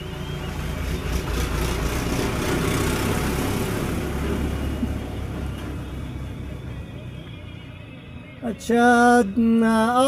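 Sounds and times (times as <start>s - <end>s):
tractor engine driving past: 0.0s - 7.9s.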